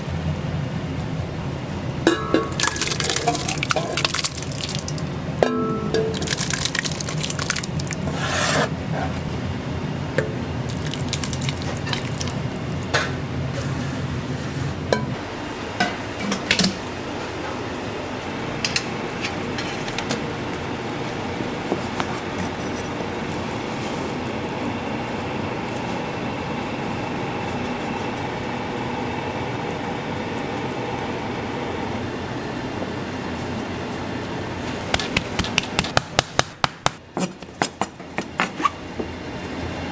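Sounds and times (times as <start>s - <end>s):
kitchen hum: 0.0s - 39.9s
wet meat squishing in a pot: 2.5s - 5.1s, 6.1s - 8.1s, 10.7s - 12.9s.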